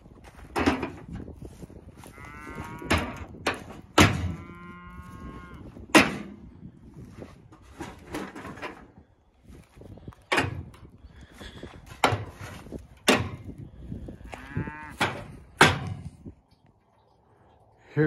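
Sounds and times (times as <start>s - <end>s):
cattle mooing: 2.0s - 3.3s, 4.0s - 5.8s, 14.2s - 15.3s
sharp knocks: 2.9s - 4.4s, 15.0s - 16.0s.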